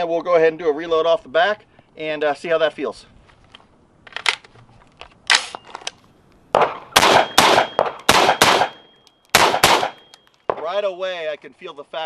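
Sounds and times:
rifle gunshots: 0:06.6 - 0:10.6.

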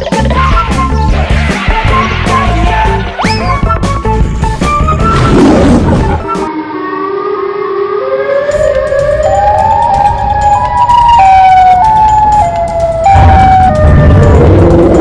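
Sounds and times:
siren wailing: 0:05.1 - 0:15.0.

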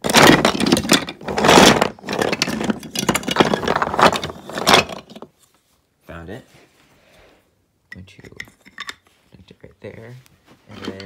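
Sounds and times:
wooden toy pieces clattering: 0:00.0 - 0:05.4, 0:08.1 - 0:09.0.

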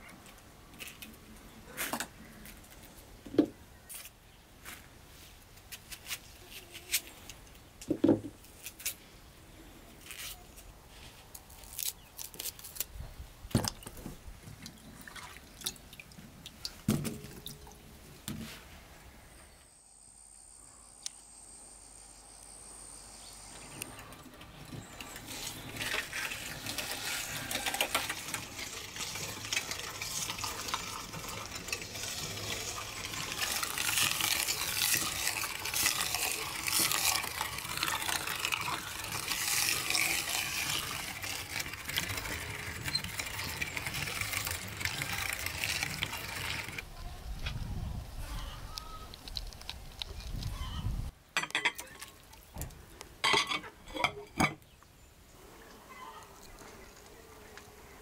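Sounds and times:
meat grinder squelching and clicking: 0:23.8 - 0:46.8.

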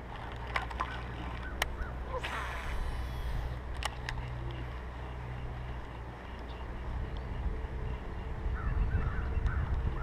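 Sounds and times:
wind buffeting microphone: 0:06.6 - 0:10.0.

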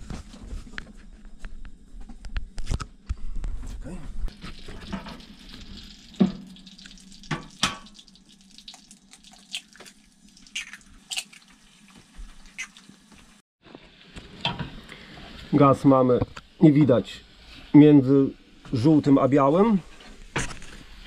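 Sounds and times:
eggs frying in butter: 0:04.3 - 0:17.8.

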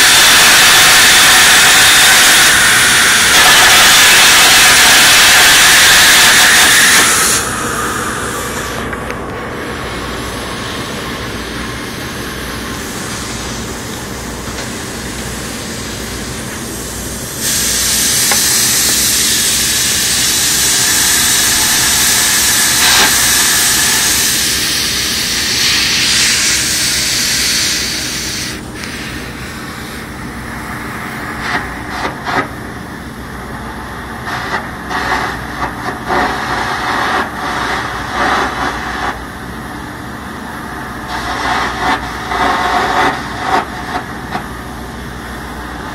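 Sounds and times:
welding crackling bursts: 0:00.0 - 0:07.5, 0:17.2 - 0:29.4, 0:34.2 - 0:39.2, 0:41.0 - 0:44.5
loud welding hiss: 0:00.0 - 0:45.9
machine drone: 0:00.0 - 0:45.9.

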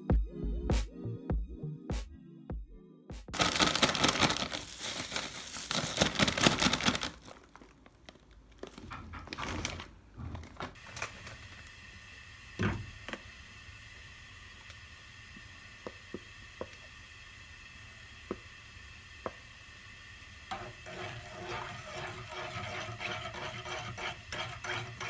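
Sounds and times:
plastic bag crinkling: 0:03.4 - 0:11.4.

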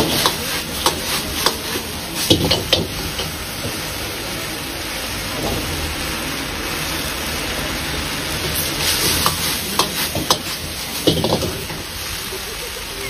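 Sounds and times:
ladle clacking against wok: 0:00.0 - 0:03.8, 0:08.3 - 0:11.9
potatoes sizzling in a wok: 0:00.0 - 0:13.0.

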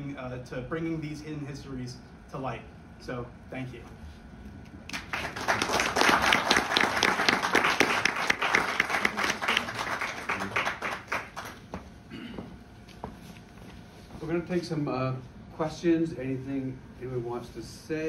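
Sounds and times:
audience applauding: 0:04.9 - 0:11.8.

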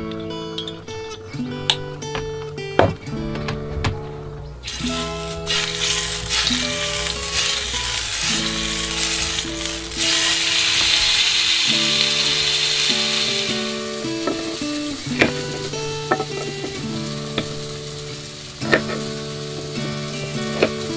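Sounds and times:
soft background music: 0:00.0 - 0:20.9
meat sizzling in a frying pan: 0:04.6 - 0:20.9.

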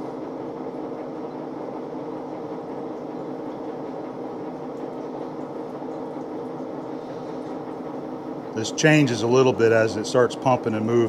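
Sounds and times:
lathe humming: 0:00.0 - 0:11.0
coolant pouring: 0:02.5 - 0:11.0.

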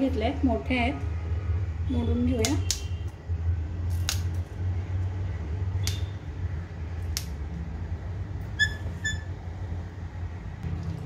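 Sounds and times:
chillies snapping: 0:03.9 - 0:04.4, 0:07.0 - 0:07.4.

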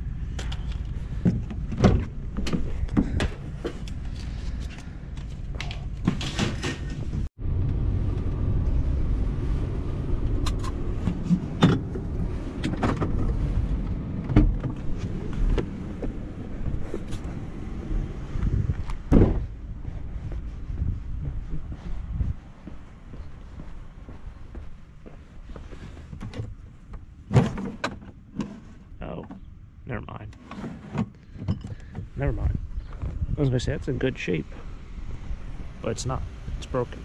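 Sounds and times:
van driving rumble: 0:06.2 - 0:30.3.

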